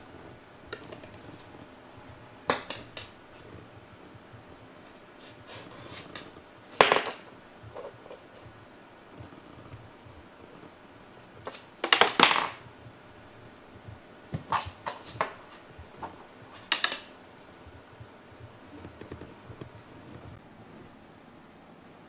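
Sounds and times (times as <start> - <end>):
cats batting toy on cardboard: 2.5 - 3.2, 5.2 - 8.2, 11.4 - 12.8, 13.9 - 20.3.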